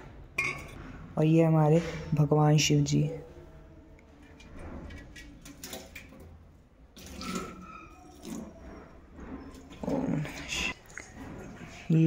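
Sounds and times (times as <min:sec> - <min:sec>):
water splashing and trickling: 0:04.2 - 0:08.6, 0:09.5 - 0:12.0.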